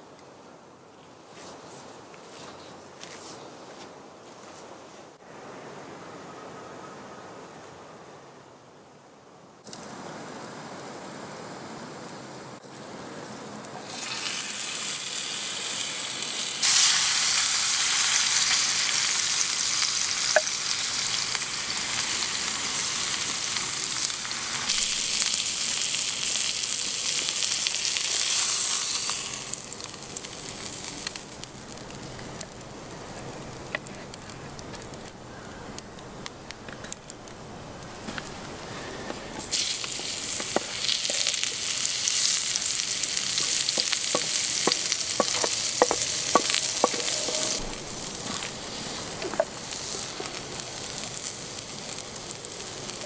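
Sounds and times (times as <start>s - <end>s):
meat sizzling in grill pan: 13.8s - 31.7s, 39.4s - 53.0s.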